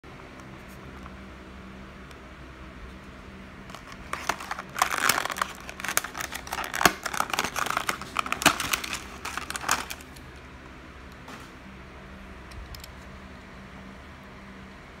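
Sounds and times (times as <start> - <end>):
plastic blister pack crinkling: 3.7 - 10.3.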